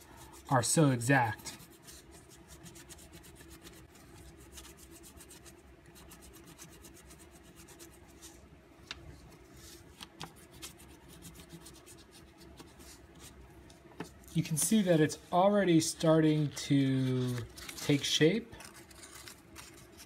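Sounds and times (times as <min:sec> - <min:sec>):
oil pastel scribbling on paper: 0:00.0 - 0:08.4, 0:09.6 - 0:13.4.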